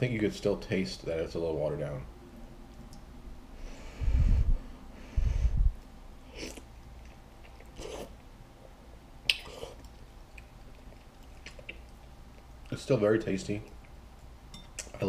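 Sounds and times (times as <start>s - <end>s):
quiet chewing: 6.3s - 8.3s, 9.2s - 12.8s.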